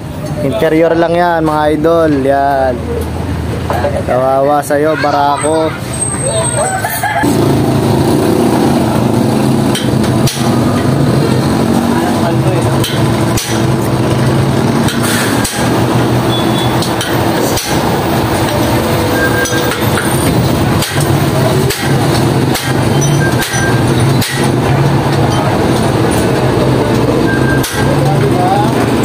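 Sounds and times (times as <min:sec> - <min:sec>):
mechanical drone: 0:07.2 - 0:29.0
hammer striking metal punch: 0:09.6 - 0:11.0, 0:12.6 - 0:13.9, 0:14.8 - 0:25.5, 0:27.4 - 0:28.0.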